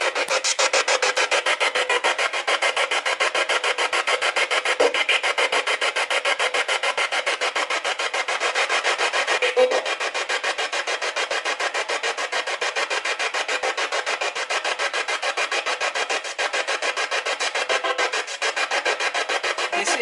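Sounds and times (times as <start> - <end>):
choppy radio static pulses: 0.0 - 20.0
brief radio tone: 9.4 - 9.8.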